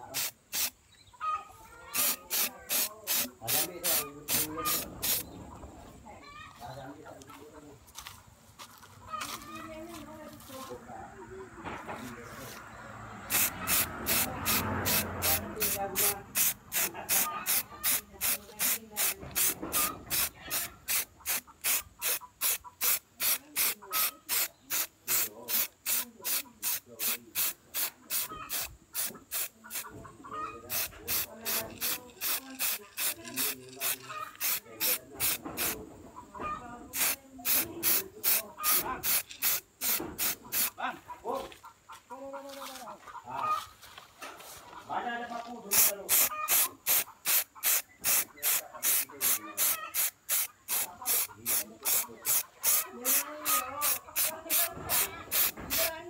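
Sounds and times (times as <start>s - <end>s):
spray-paint can hissing: 0.0s - 0.8s, 2.0s - 5.2s, 13.3s - 29.8s, 30.7s - 35.8s, 36.9s - 40.8s, 45.7s - 55.9s.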